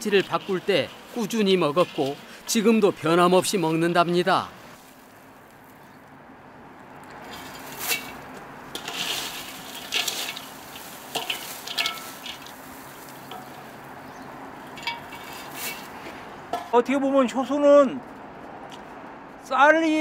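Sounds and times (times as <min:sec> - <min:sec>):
dry leaves rustling in a bowl: 0:00.0 - 0:06.0, 0:07.2 - 0:16.2
dry leaves crunching: 0:00.0 - 0:06.1, 0:06.7 - 0:16.8.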